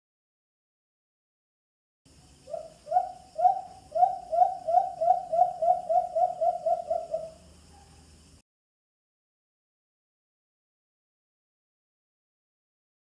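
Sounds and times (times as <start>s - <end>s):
dove low hoots accelerating: 2.4s - 7.9s.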